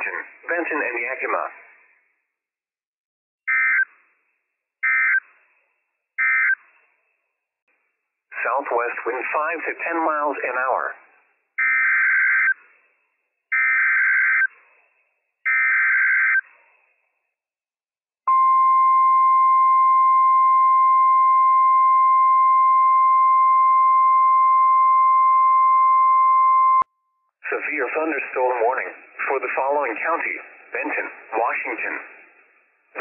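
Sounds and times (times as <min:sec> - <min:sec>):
steady warning alarm tone: 0:04.8 - 0:05.2, 0:13.5 - 0:14.5.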